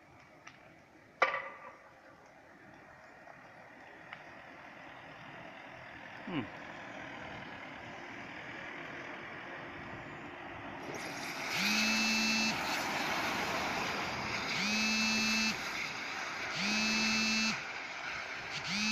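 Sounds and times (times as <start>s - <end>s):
horn blasts: 11.6s - 12.8s, 14.5s - 15.8s, 16.5s - 17.7s.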